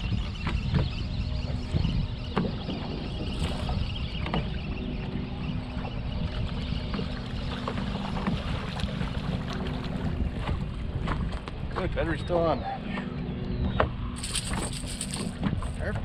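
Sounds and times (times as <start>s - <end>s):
wind buffeting microphone: 0.0s - 12.6s
water noise: 0.0s - 16.0s.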